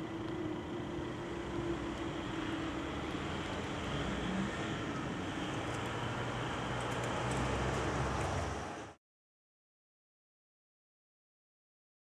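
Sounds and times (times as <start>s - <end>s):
road traffic noise: 0.0s - 9.0s.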